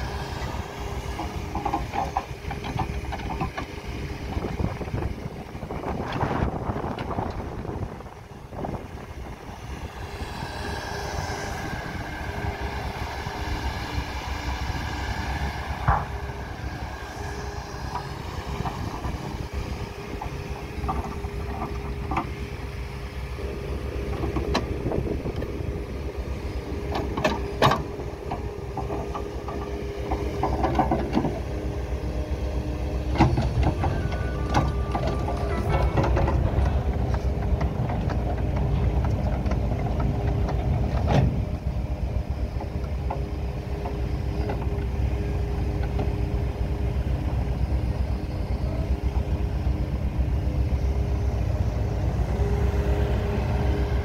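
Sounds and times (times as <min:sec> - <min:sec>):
bucket and tracks clanking: 0:00.0 - 0:05.2, 0:26.8 - 0:31.8, 0:33.0 - 0:41.6
excavator diesel engine running: 0:00.0 - 0:54.0.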